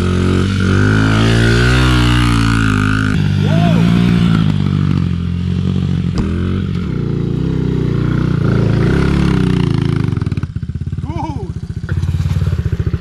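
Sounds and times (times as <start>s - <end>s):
motorbike engine revving and idling: 0.0s - 13.0s.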